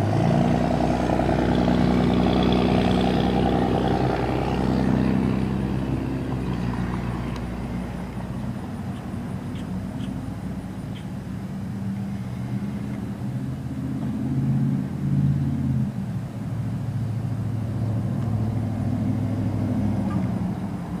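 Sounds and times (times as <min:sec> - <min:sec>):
car engine idling: 0:01.0 - 0:14.2.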